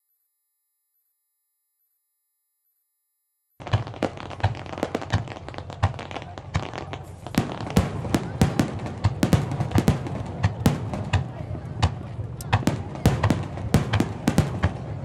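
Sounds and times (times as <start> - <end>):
fireworks bangs and cracks: 3.6 - 15.0.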